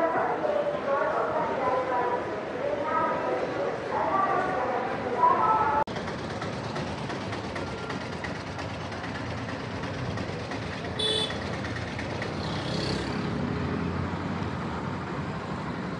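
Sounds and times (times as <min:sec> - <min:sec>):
hum of passing vehicles: 0:02.6 - 0:15.9
car horn toot: 0:11.0 - 0:11.4.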